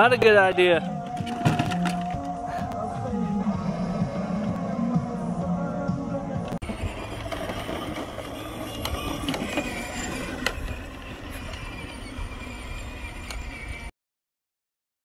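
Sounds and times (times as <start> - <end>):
toy tractor electric motor: 6.6 - 13.9.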